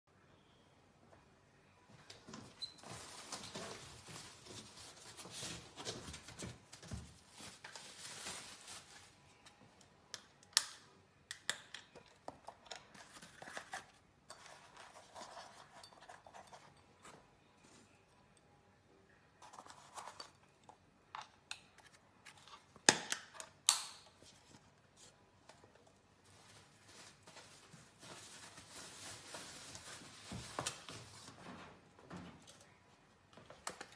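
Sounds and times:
cardboard boxes rustling: 2.5 - 9.2, 26.2 - 31.8.

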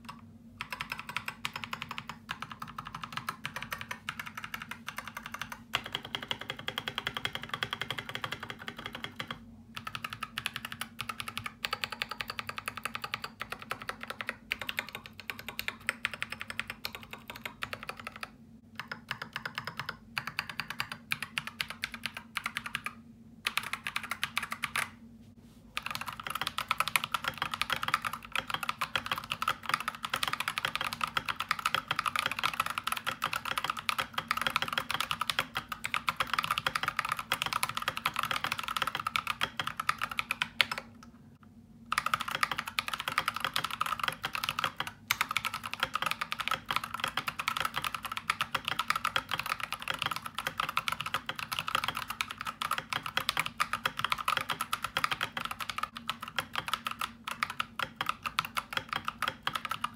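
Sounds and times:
mechanical keyboard typing: 0.0 - 25.0, 25.8 - 41.1, 41.9 - 59.9.

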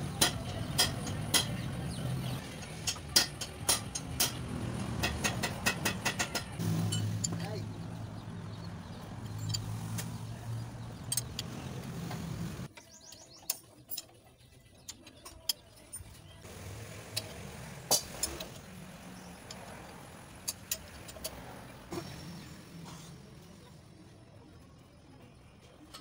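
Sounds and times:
metallic wrench clicks and clinks: 9.2 - 9.7.

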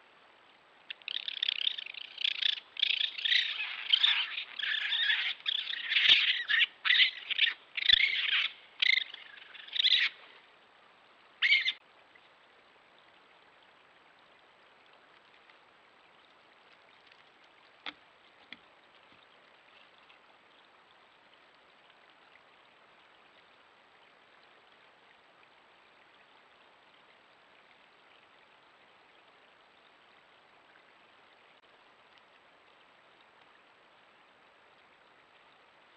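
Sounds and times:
faint steady hiss: 0.0 - 35.9
high-pitched animal calls: 0.9 - 10.2, 11.4 - 11.8.

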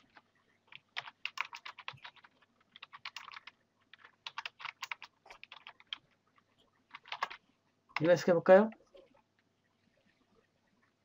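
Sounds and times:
typing on computer keyboard: 0.1 - 6.1, 6.9 - 7.4.

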